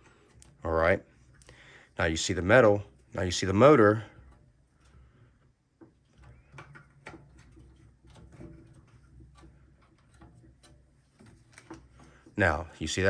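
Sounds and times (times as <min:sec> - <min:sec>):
clicks and metal knocks: 0:03.7 - 0:12.4.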